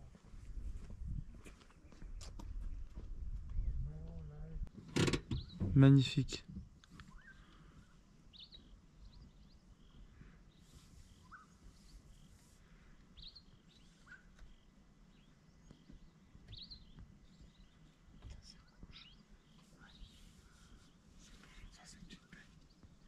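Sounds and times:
faint bird chirps: 0:06.8 - 0:23.0.

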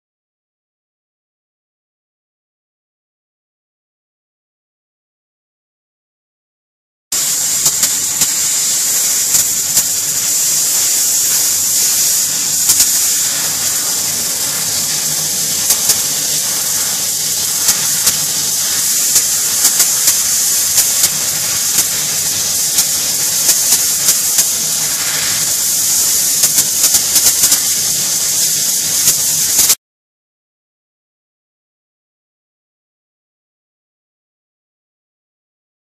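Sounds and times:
compressed air hissing: 0:07.2 - 0:29.8.

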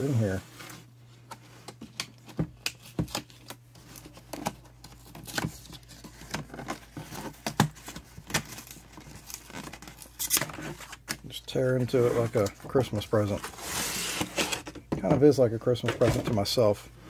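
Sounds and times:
cardboard sleeve rustling and scraping: 0:00.0 - 0:01.6, 0:11.7 - 0:14.7.

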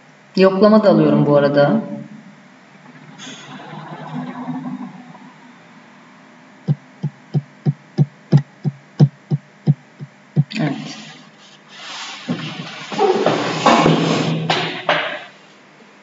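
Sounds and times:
brief burst of noise: 0:02.8 - 0:05.9.

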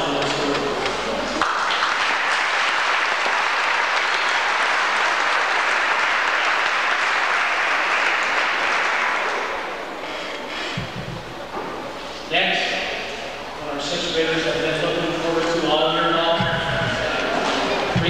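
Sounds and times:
audience applauding: 0:01.3 - 0:10.2.

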